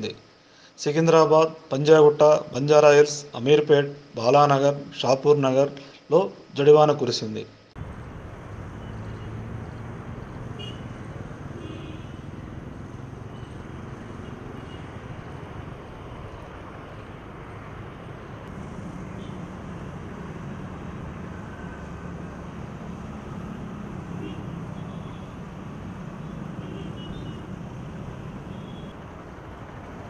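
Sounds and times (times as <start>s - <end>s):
distant road traffic rumble: 7.8s - 30.0s.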